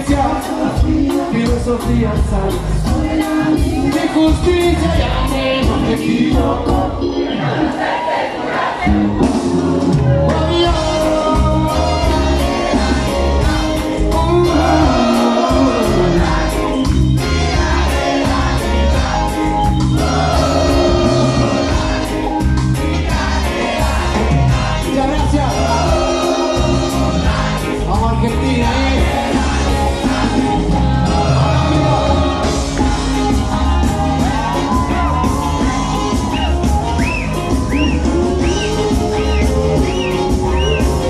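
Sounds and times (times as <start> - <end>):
live reggae band playing: 0.0 - 41.0
person singing: 10.0 - 19.4.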